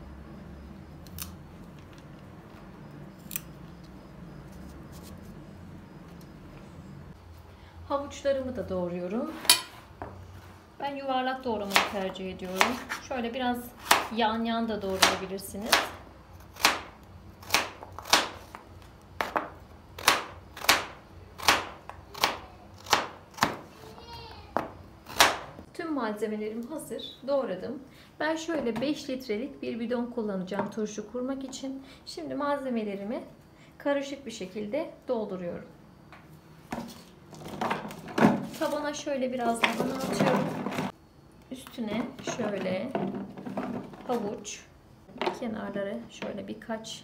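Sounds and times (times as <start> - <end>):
knife cutting chilli peppers: 3.1 - 3.9, 11.6 - 13.2, 13.8 - 14.2, 20.0 - 24.0.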